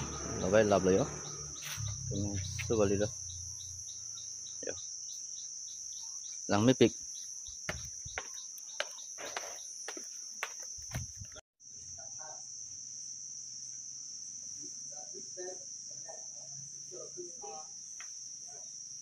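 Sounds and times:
insects chirring: 0.0 - 19.0
footsteps on concrete steps: 7.6 - 11.4.

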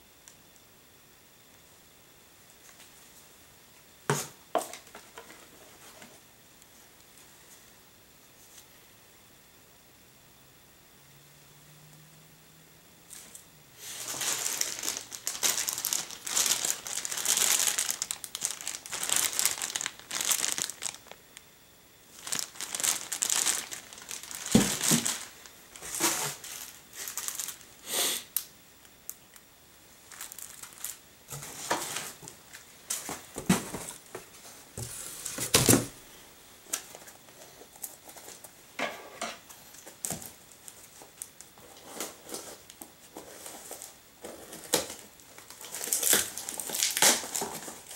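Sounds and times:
plastic packaging crinkling: 13.8 - 21.4, 22.1 - 27.8, 30.0 - 34.4, 39.5 - 47.9.

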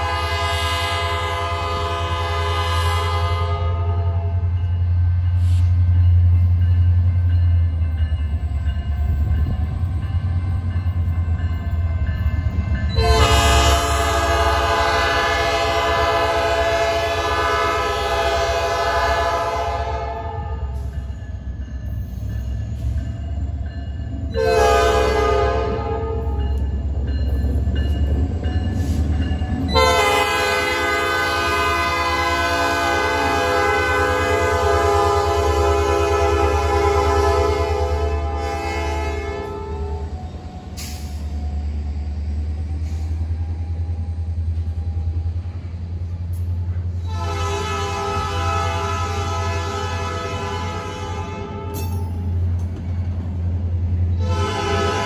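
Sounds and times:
locomotive horn blasts: 0.0 - 4.4, 12.9 - 20.8, 24.3 - 26.4, 29.7 - 40.1, 47.0 - 51.9, 54.2 - 55.0.

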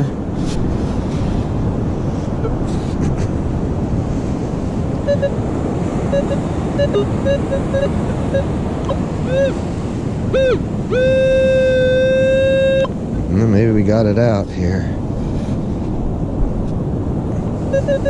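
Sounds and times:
surf: 0.0 - 18.0
wind: 0.0 - 18.0
metal detector beeps: 5.1 - 5.4, 6.1 - 9.6, 10.3 - 12.9, 17.7 - 18.0
metal detector rising-and-falling tones: 5.1 - 5.4, 6.1 - 9.6, 10.3 - 12.9, 17.7 - 18.0.

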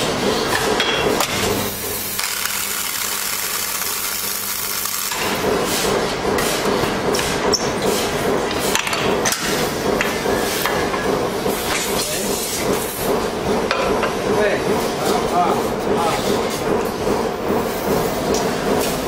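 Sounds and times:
welding transformer hum: 0.0 - 14.0
machine clamps clicking and knocking: 0.3 - 19.0
welding spark hiss: 1.8 - 5.2.

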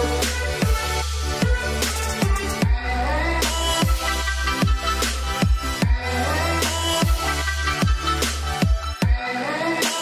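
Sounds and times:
deep sustained bass: 0.0 - 9.1
kick drums: 8.6 - 9.2.

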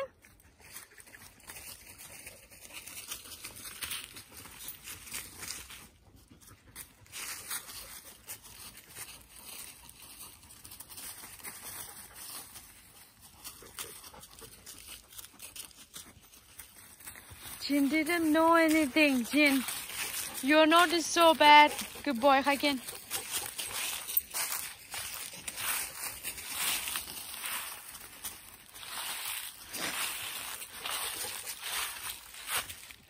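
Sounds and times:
dry leaves rustling and crunching: 0.6 - 5.9, 7.1 - 33.0.

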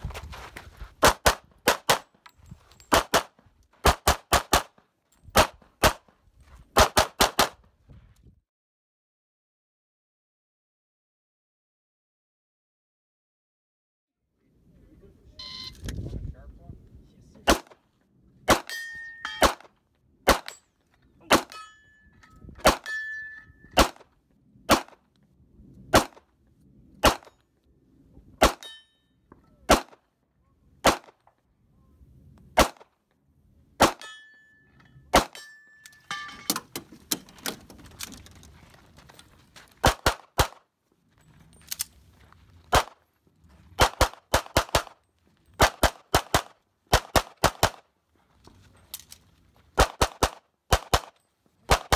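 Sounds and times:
ringing ding of steel targets: 18.7 - 19.4, 21.5 - 23.8, 28.6 - 29.2, 34.0 - 36.6
handgun shots: 19.4 - 19.7, 21.3 - 21.6, 23.7 - 24.0.

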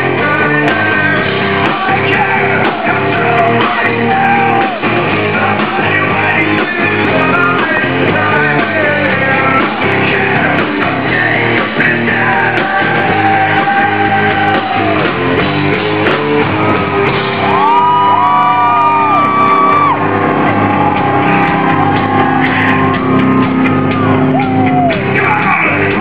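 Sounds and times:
male lead vocal: 0.0 - 15.2, 24.4 - 26.0
hard rock band playing live: 0.0 - 26.0.

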